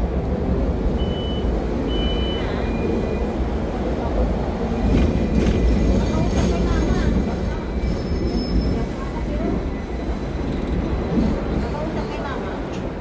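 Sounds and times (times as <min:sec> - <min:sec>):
tram rumbling on rails: 0:00.0 - 0:13.0
short high beeps: 0:01.0 - 0:03.3.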